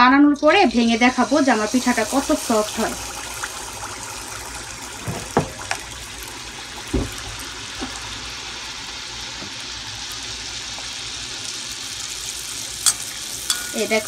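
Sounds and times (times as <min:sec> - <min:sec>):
batter sizzling in hot oil: 0:00.4 - 0:14.0
knock: 0:05.0 - 0:05.6, 0:06.9 - 0:07.2.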